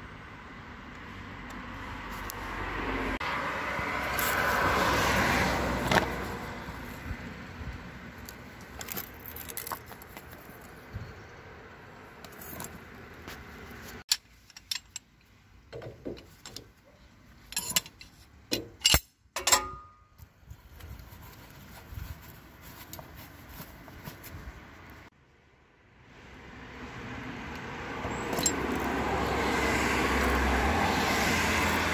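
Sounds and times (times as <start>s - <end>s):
metal tools clinking and rattling: 14.1s - 16.8s, 17.4s - 20.2s, 28.1s - 28.9s.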